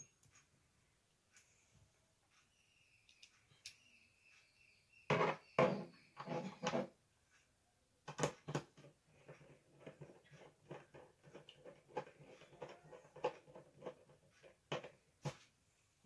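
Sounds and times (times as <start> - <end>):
knocks and scrapes: 5.1 - 7.0, 8.1 - 15.5.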